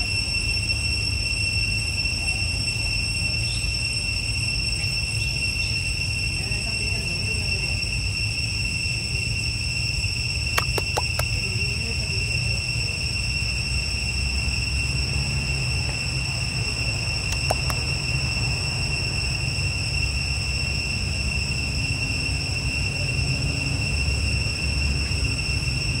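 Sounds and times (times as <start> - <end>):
high-pitched insect drone: 0.0 - 26.0
sharp clicks: 10.6 - 11.4, 17.3 - 17.9.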